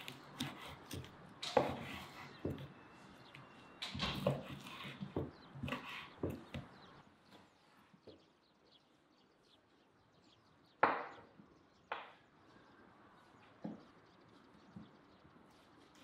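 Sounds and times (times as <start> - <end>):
knife chopping meat on board: 0.0 - 2.7.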